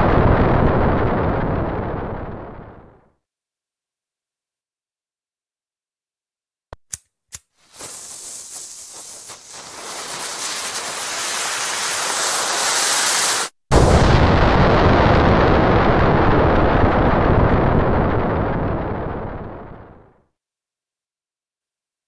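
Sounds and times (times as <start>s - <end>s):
dynamite explosion with rumbling: 0.0s - 3.1s, 7.7s - 20.2s
sharp clicks: 6.7s - 7.5s
fuse hissing: 7.6s - 13.6s.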